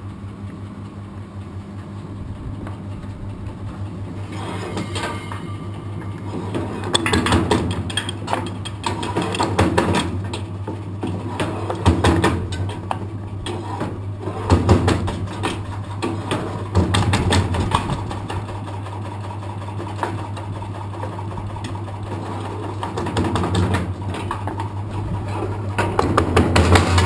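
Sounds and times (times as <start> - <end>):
wood splitting machine clatter: 6.0 - 27.0.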